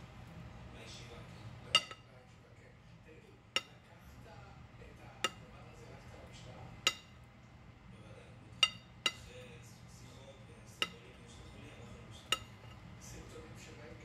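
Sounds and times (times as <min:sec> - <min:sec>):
metal spoon clinking on pan rim: 0:01.7 - 0:02.1, 0:03.6 - 0:03.9, 0:06.8 - 0:07.2, 0:08.6 - 0:09.4, 0:10.8 - 0:11.1, 0:12.2 - 0:12.8.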